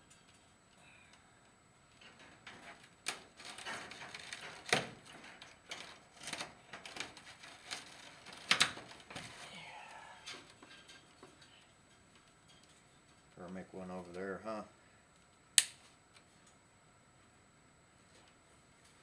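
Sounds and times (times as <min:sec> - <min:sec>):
wire mesh clicking: 0:01.9 - 0:13.4
wire scraping and rustling: 0:01.9 - 0:14.3.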